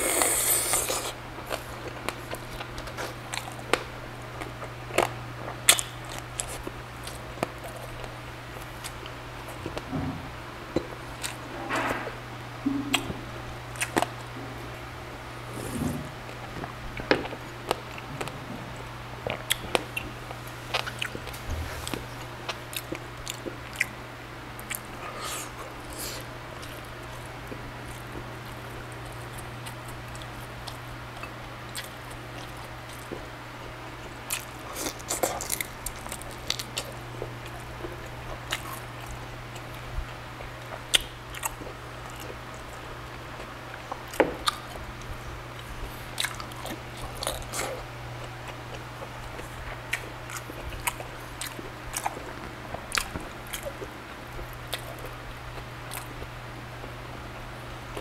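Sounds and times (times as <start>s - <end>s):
crisp chewing crunches: 0.0s - 9.9s, 34.0s - 57.0s
steady low hum: 0.0s - 58.0s.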